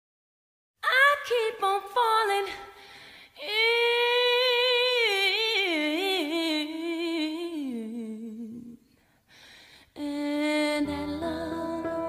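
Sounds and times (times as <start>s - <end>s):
person singing unaccompanied: 10.0s - 12.0s.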